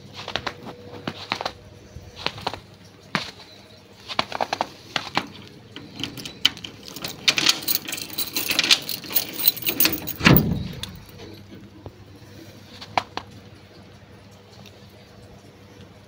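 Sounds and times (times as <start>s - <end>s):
keys jingling: 4.3s - 11.6s
key rattling in metal gate lock: 5.0s - 11.7s
lock clunking: 5.0s - 11.7s.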